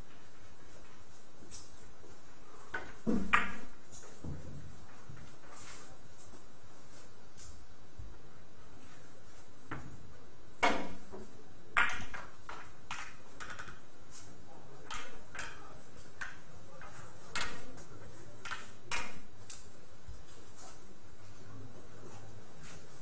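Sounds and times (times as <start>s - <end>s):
billiard balls clicking: 11.8s - 13.9s, 14.8s - 15.6s.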